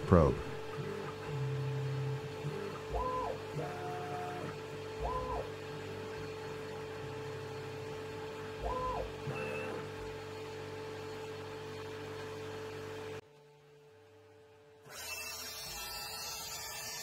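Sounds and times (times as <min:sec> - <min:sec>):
drive motors whining: 0:00.0 - 0:07.9, 0:08.6 - 0:10.4
steady machine hum: 0:00.0 - 0:17.0.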